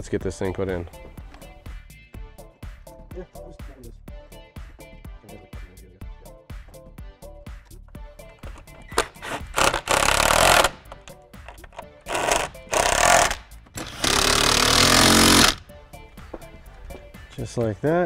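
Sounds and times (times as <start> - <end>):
faint background music with beat: 0.0 - 18.0
cordless power driver running: 9.0 - 11.0, 12.0 - 15.6.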